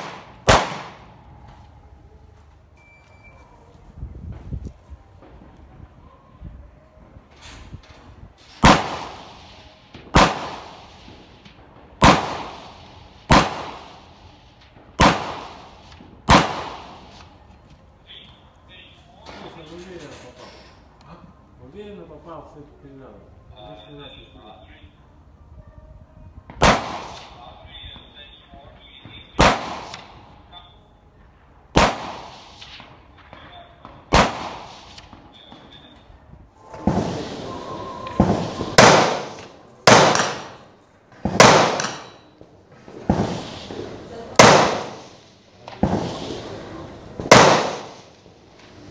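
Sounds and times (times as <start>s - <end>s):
gunshots with echo: 0.0s - 1.2s, 8.6s - 14.2s, 15.0s - 17.2s, 26.6s - 27.6s, 29.4s - 30.4s, 31.7s - 35.9s, 36.6s - 48.2s.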